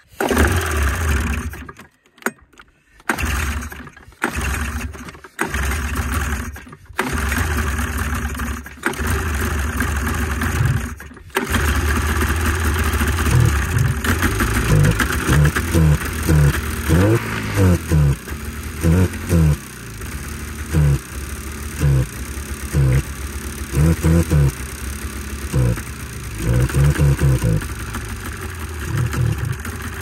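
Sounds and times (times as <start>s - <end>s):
snowmobile engine starting and revving: 0.0s - 1.9s, 2.9s - 30.0s.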